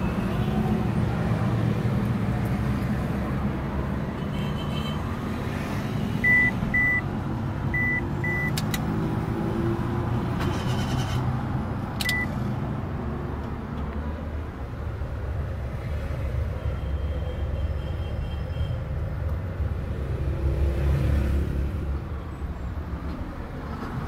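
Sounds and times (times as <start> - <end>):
sharp clicks: 8.5 - 8.9.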